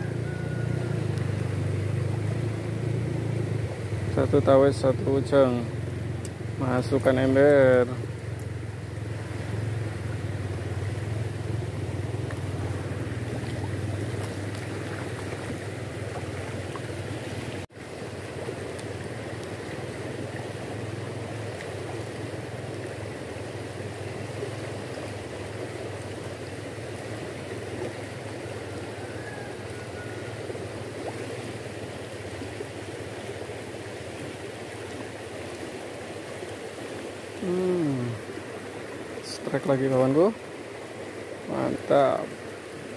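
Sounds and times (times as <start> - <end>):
fast-flowing river rushing: 0.0 - 42.9.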